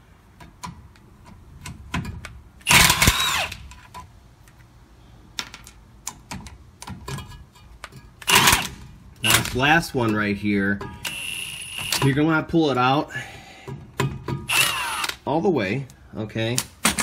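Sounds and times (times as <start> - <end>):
rasping ratchet burst: 2.6 - 3.6, 8.2 - 9.5, 11.0 - 12.0, 14.5 - 15.2.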